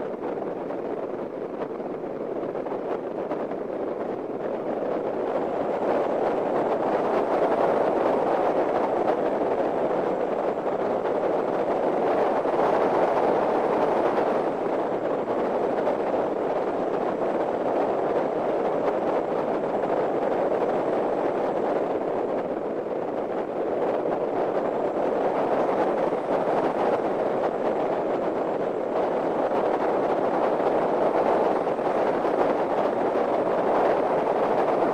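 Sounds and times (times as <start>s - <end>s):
wind and road noise: 0.0s - 34.9s.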